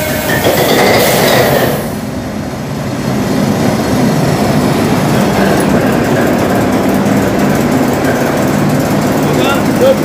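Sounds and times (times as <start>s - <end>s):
ship diesel engine running: 2.1s - 10.0s.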